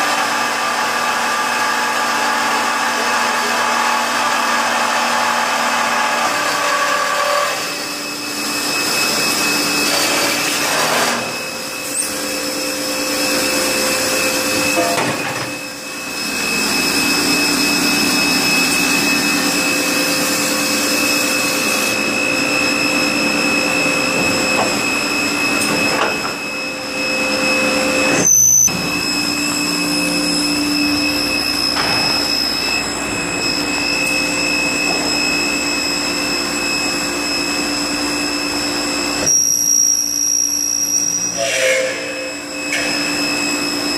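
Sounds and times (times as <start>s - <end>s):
high whines of drives: 11.1s - 41.4s.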